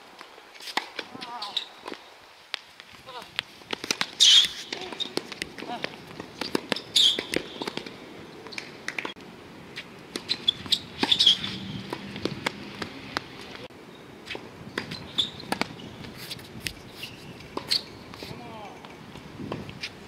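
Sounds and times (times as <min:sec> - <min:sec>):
shoe squeaks: 0:01.4 - 0:01.8, 0:04.2 - 0:05.3, 0:06.4 - 0:07.7, 0:10.2 - 0:11.8, 0:14.3 - 0:18.4
rackets striking ball: 0:03.7 - 0:09.2
ball bouncing: 0:10.1 - 0:13.6.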